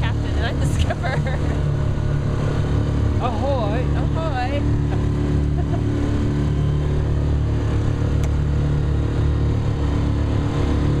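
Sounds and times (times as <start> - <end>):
motorboat engine droning: 0.0 - 11.0
wind and water rushing: 0.0 - 11.0.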